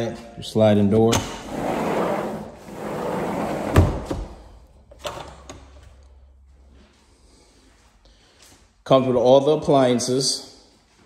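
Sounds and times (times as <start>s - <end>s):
sliding door rolling on track: 1.4s - 4.0s.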